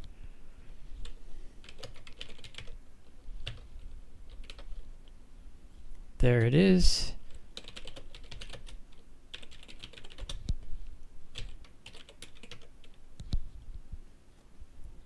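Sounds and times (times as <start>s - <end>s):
keyboard typing: 1.0s - 2.8s, 3.4s - 4.8s, 7.6s - 10.5s, 11.3s - 13.0s.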